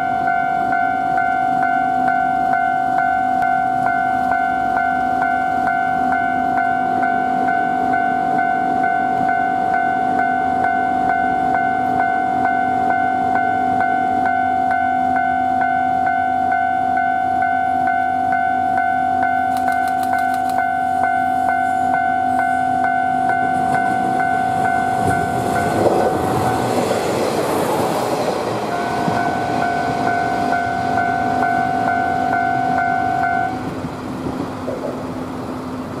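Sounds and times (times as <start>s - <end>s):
level-crossing bell ringing: 0.0s - 26.7s, 28.6s - 33.6s
diesel train passing: 0.0s - 36.0s
wheels clacking on rail joints: 23.2s - 36.0s.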